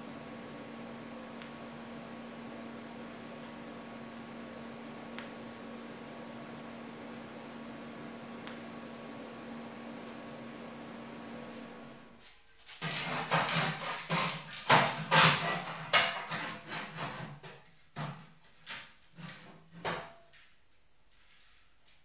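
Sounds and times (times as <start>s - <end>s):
sheet steel knocking and clanking: 12.8s - 18.2s.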